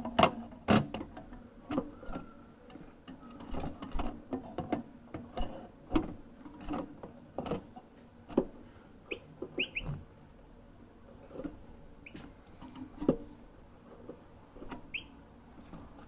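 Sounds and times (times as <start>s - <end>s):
short high bird chirps: 9.1s - 9.9s.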